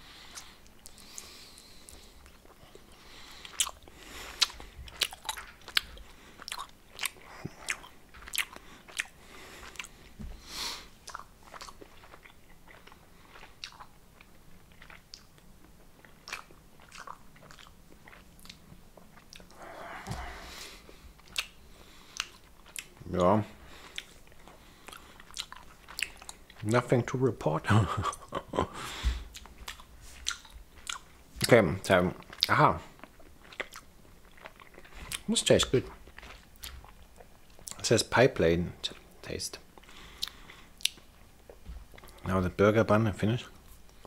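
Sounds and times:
chewing gummy candy: 0:00.3 - 0:10.2, 0:11.0 - 0:19.7, 0:21.2 - 0:26.9, 0:29.3 - 0:31.6, 0:32.2 - 0:37.8, 0:39.8 - 0:42.3
sticky mouth clicks and smacks: 0:11.0 - 0:12.9, 0:14.8 - 0:18.6, 0:21.2 - 0:21.6.

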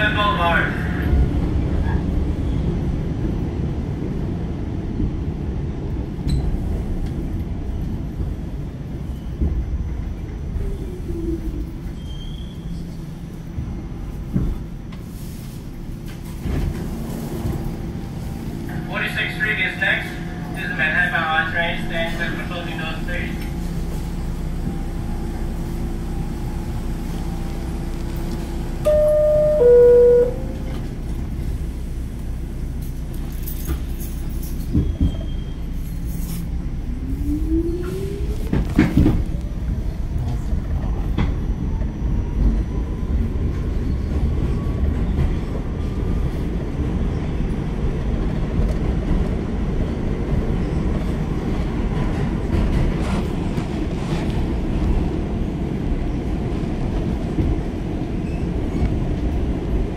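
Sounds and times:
train rumbling: 0:00.0 - 0:59.9
train clunks: 0:16.0 - 0:35.5, 0:38.5 - 0:39.4
two-note door chime: 0:28.8 - 0:30.8.

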